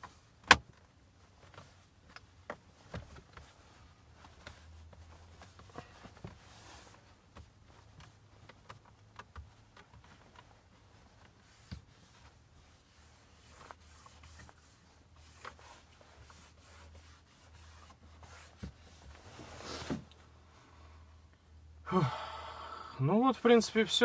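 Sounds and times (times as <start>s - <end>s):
breath: 21.9s - 23.0s.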